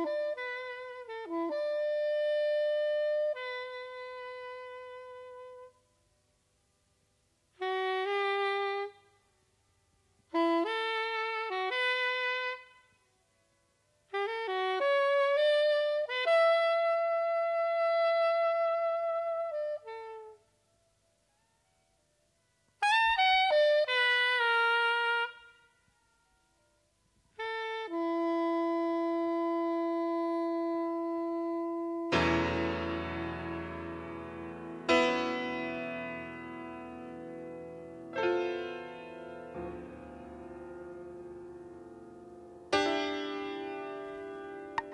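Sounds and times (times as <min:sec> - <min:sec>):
saxophone playing jazz phrases: 0:00.0 - 0:05.8, 0:07.5 - 0:09.1, 0:10.3 - 0:12.8, 0:14.1 - 0:20.5, 0:22.8 - 0:25.7, 0:27.4 - 0:44.9.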